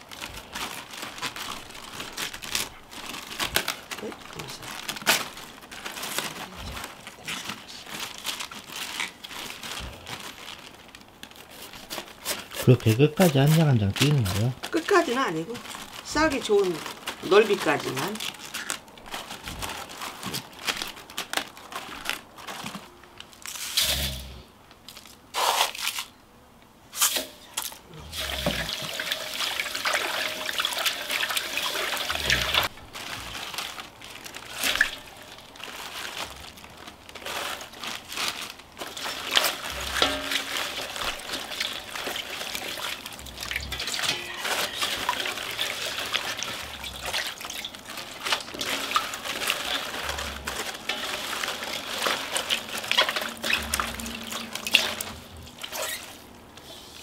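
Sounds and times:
cabbage leaves knocking and rustling: 0.0 - 26.1, 27.0 - 56.7
water running and splashing in bowl: 28.1 - 32.7, 34.5 - 36.2, 38.8 - 55.8.

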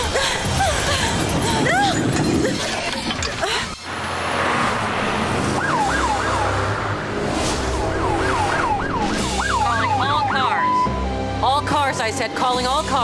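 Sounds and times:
rushing noise: 3.9 - 9.8
police siren wailing: 5.4 - 11.2.

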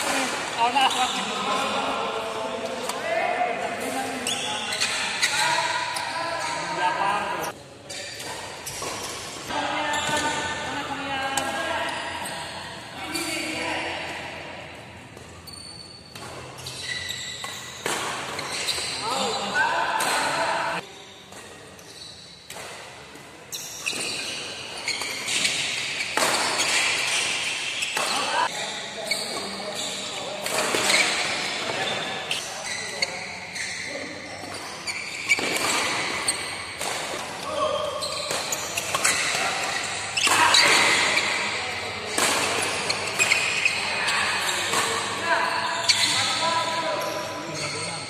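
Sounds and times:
noise of echoing hall: 0.0 - 48.0
racket hitting shuttlecock: 16.1 - 16.8, 17.4 - 19.0, 19.9 - 21.6, 22.4 - 23.3, 23.9 - 28.3, 35.2 - 43.8.

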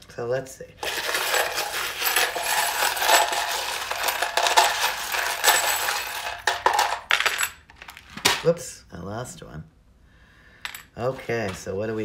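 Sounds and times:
metal charms jingling: 0.8 - 7.6.

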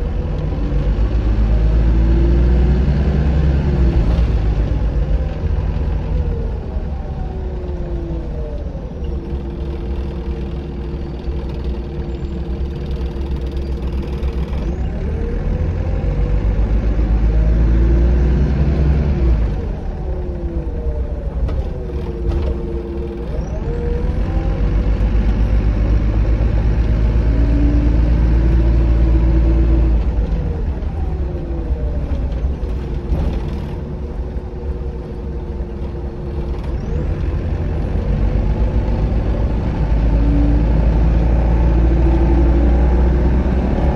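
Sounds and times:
bus engine droning: 0.0 - 43.9.

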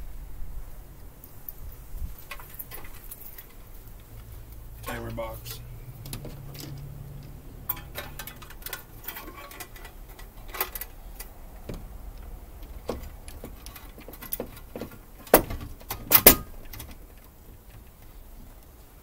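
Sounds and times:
light metal clicks and taps: 6.0 - 18.8.

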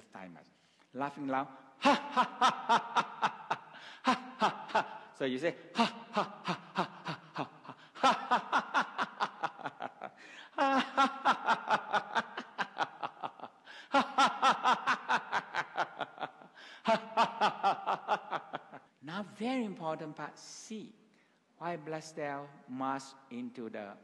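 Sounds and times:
man laughing deliberately: 1.8 - 18.9.

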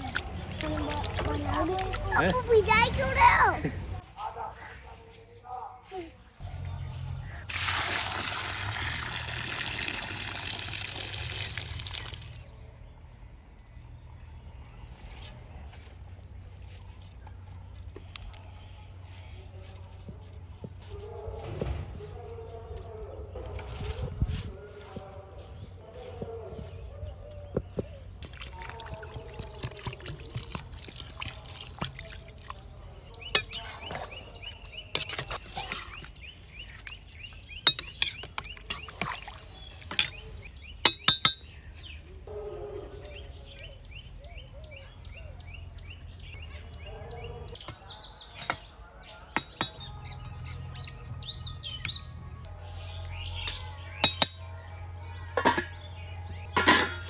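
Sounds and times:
birds chirping: 22.0 - 57.0
steel cookware clinking: 56.5 - 57.0
steel lid clinking onto pot: 56.6 - 57.0.

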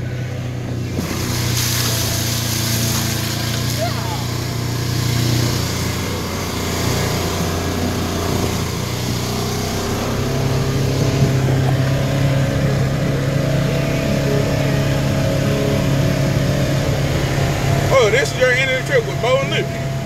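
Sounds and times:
vehicle engine running: 0.0 - 20.0
wind: 0.0 - 20.0
tyre noise on dirt: 0.7 - 13.0.

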